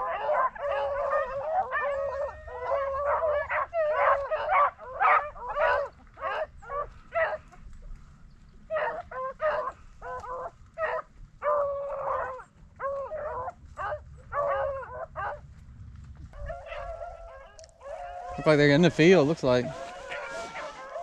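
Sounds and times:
dogs baying: 0.0 - 7.8, 8.6 - 15.5, 16.3 - 21.0.

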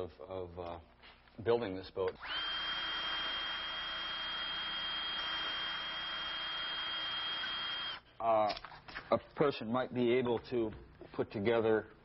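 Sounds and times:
power tool whirring: 2.1 - 8.0.

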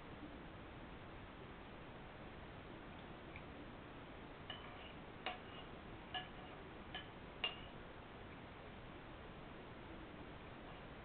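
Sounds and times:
spoon clinking against bowl: 4.5 - 7.8.

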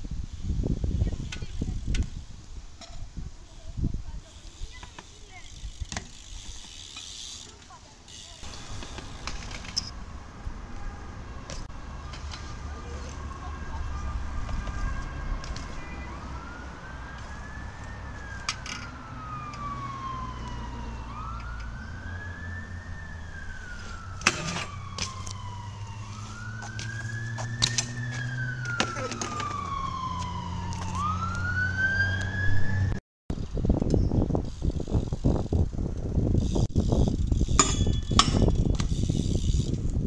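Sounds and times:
bike knocking on concrete: 4.7 - 7.3, 37.4 - 39.1
emergency siren wailing: 12.6 - 33.0.

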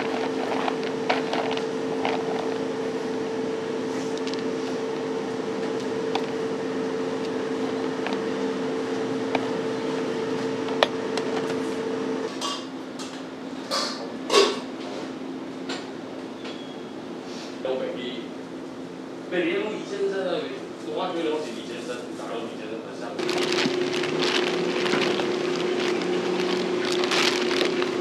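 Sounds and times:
machine hum: 0.0 - 13.5, 23.2 - 28.0.

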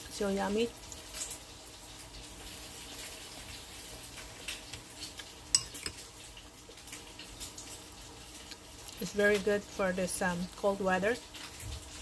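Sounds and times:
spoon clinking on ceramic bowl: 5.5 - 6.0.

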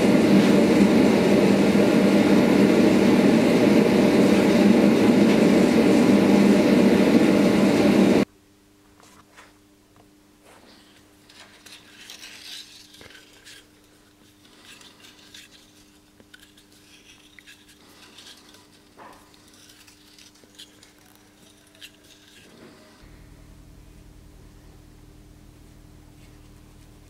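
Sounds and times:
steady low hum: 0.0 - 27.0
fingers rubbing wire-wrapped grip: 11.2 - 23.0.

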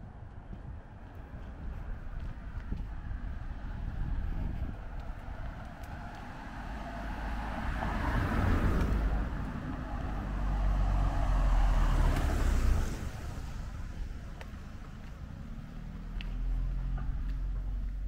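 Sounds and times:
cars passing on road: 0.0 - 18.0.

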